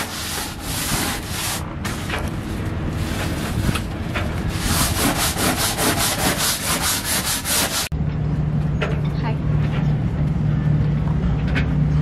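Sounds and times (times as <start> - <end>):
low motor hum: 0.0 - 5.7, 7.9 - 12.0
scrub brush scrubbing deck: 0.0 - 7.9.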